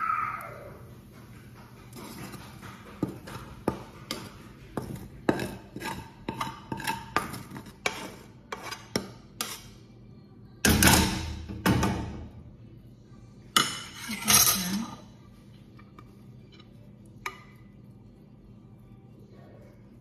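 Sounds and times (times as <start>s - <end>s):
wok knocking and scraping glass dish: 1.9s - 9.7s.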